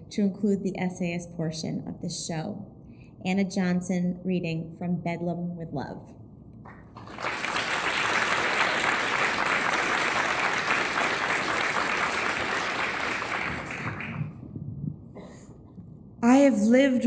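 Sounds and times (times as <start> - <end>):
audience applause: 7.0 - 14.4.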